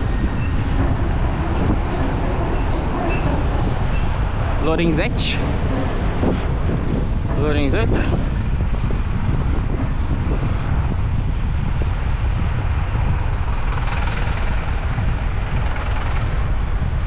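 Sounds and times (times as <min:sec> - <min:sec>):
street traffic: 0:00.0 - 0:17.0
wind rumble on microphone: 0:00.0 - 0:17.0.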